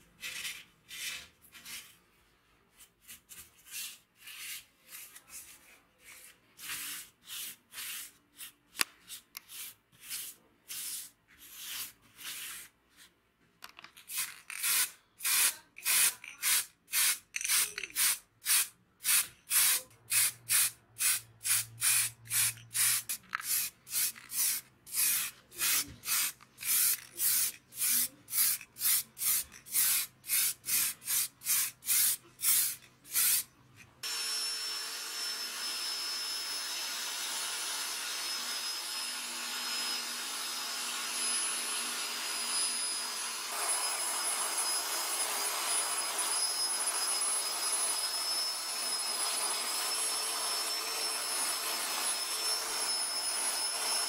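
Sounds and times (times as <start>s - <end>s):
spray-paint can hissing bursts: 14.1s - 33.5s.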